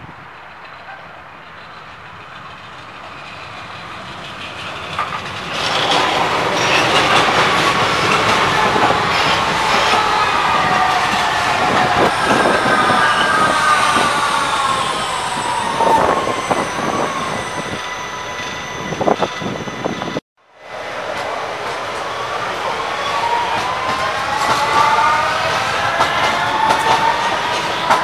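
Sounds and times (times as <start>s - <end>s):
train wheels clanking: 0.2s - 17.2s
electric train motor whine: 10.9s - 17.8s.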